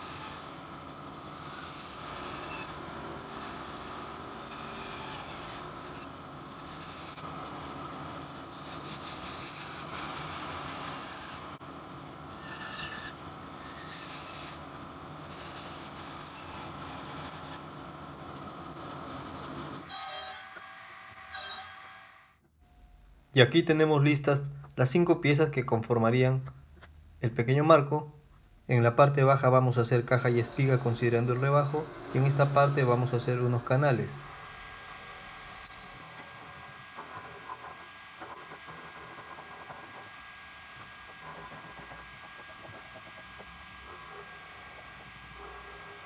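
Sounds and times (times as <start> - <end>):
bandsaw cutting timber: 1.2 - 7.4, 12.4 - 14.6.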